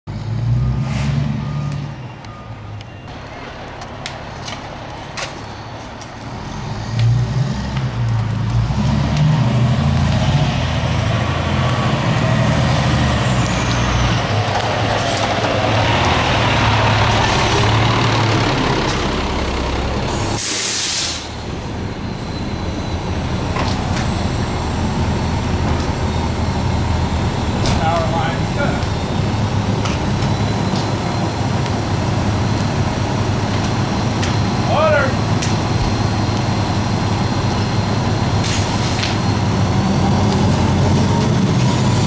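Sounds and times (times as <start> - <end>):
diesel engine rumbling: 0.1 - 42.0
air brakes hissing: 20.0 - 23.1.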